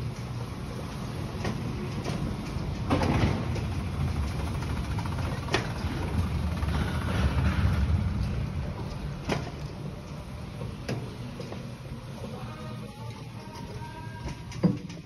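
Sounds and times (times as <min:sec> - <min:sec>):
floor scrubber rumbling: 0:01.6 - 0:12.2.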